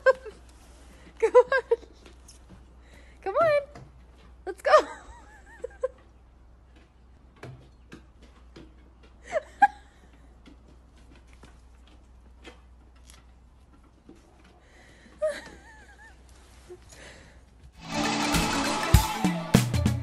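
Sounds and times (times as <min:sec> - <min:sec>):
paws tapping on wooden steps: 0:05.5 - 0:16.3.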